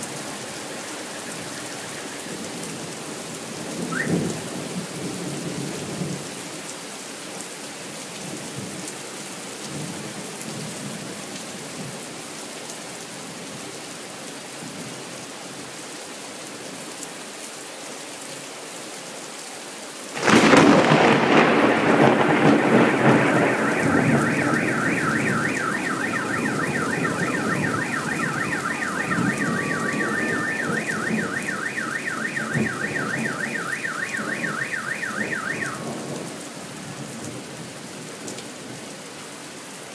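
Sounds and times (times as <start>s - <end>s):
rain falling: 0.0s - 39.9s
car alarm warbling: 0.4s - 2.8s, 3.9s - 4.4s, 20.2s - 36.0s
thunderclap rumbling: 20.2s - 36.3s.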